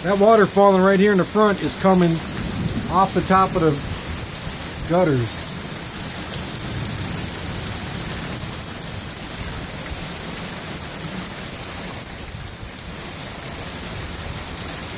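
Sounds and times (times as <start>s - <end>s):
heavy rain pouring: 0.0s - 14.9s
water overflowing gutters: 0.0s - 14.9s.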